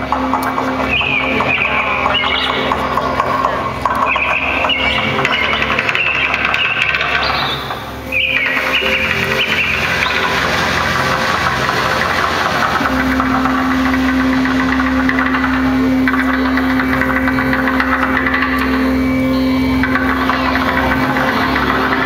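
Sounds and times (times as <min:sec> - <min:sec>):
dense steady drone: 0:00.0 - 0:22.0
strong low tone: 0:08.0 - 0:22.0.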